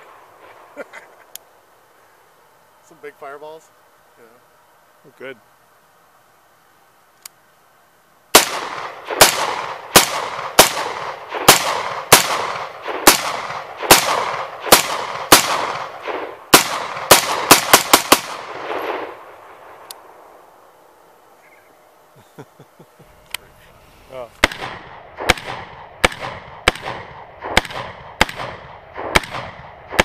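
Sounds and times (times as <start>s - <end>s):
gunshots with echo: 8.4s - 19.2s, 24.4s - 30.0s.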